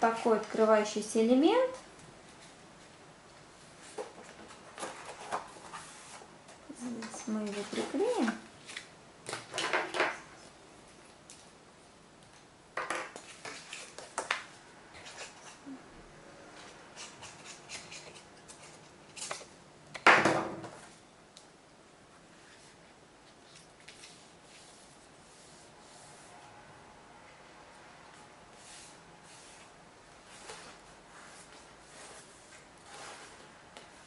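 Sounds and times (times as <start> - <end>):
paper rustling: 22.4 - 25.6.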